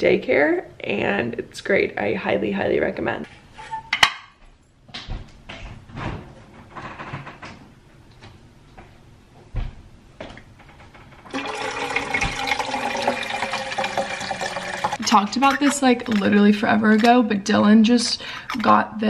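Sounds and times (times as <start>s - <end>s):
water pouring into plastic tank: 11.3s - 16.2s.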